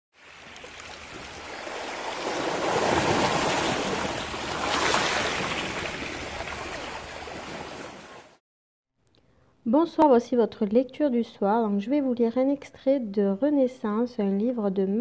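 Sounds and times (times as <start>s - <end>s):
waves washing over pebbles: 0.2s - 8.4s.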